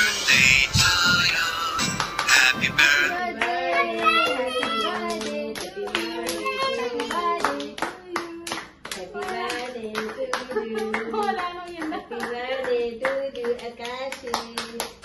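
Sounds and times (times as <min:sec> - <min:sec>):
electronic music with synthetic singing: 0:00.0 - 0:03.2
group singing together: 0:00.0 - 0:14.8
people clapping in time: 0:01.2 - 0:15.0.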